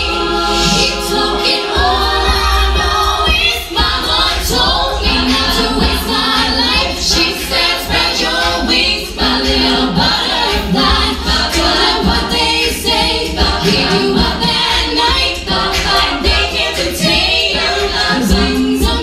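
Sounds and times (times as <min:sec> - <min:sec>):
steady beat: 0:00.0 - 0:19.0
women singing a cappella: 0:00.0 - 0:19.0.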